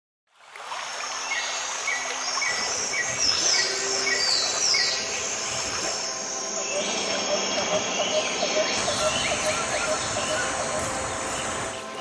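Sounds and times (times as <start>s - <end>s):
high insect drone: 1.0s - 12.0s
falling bird calls: 6.6s - 12.0s.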